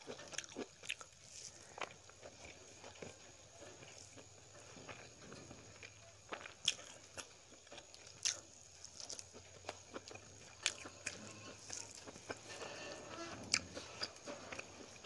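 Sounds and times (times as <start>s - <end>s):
chewing and mouth sounds: 0.0s - 15.0s.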